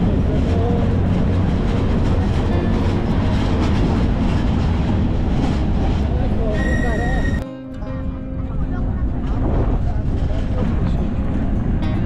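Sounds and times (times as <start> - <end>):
truck engine and road rumble: 0.0 - 12.0.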